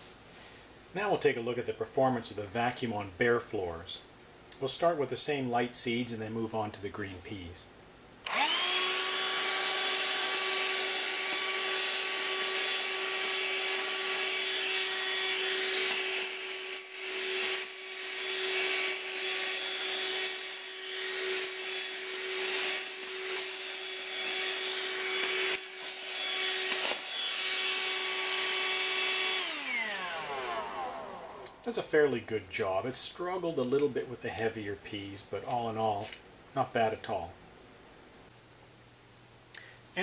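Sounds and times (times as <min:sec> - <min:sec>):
hand vacuum whining: 0:08.2 - 0:31.6.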